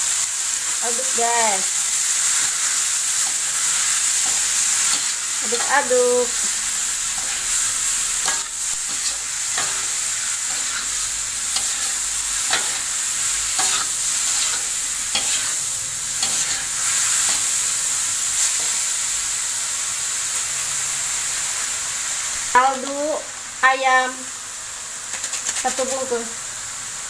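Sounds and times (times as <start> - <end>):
food sizzling in hot oil: 0.0 - 27.0
metal spatula scraping wok: 2.0 - 18.9.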